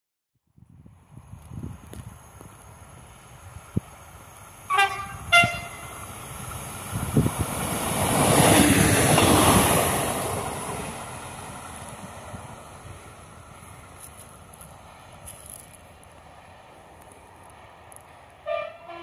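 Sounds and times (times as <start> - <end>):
train passing by: 0.9 - 19.0
train horn blasts: 4.7 - 6.0, 18.4 - 19.0.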